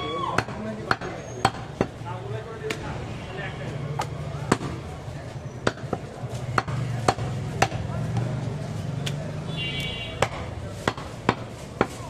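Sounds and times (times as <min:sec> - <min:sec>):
knife chopping meat on wood block: 0:06.6 - 0:07.8, 0:10.2 - 0:12.0.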